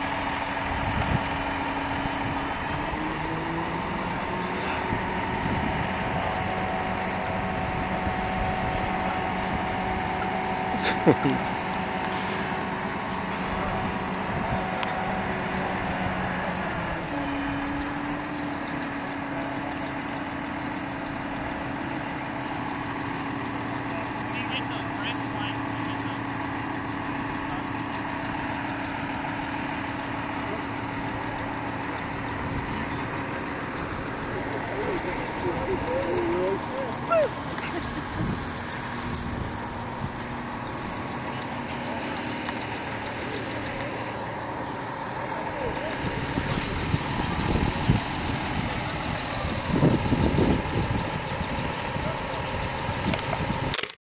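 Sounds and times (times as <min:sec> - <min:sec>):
crane engine running: 0:00.0 - 0:54.0
wind buffeting microphone: 0:00.3 - 0:10.3, 0:12.4 - 0:19.8, 0:30.8 - 0:41.1, 0:45.9 - 0:53.8.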